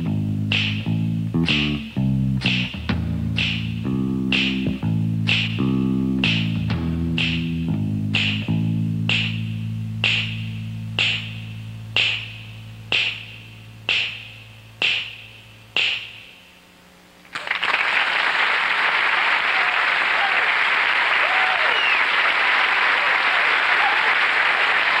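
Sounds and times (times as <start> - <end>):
finger snaps: 0.0 - 15.2
low held bass note: 0.0 - 16.4
audience applause: 17.3 - 25.0.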